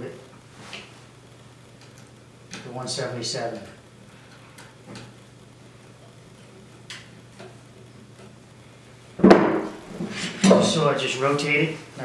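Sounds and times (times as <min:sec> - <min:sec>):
low steady hum: 0:00.0 - 0:12.0
loud knock: 0:09.2 - 0:09.8.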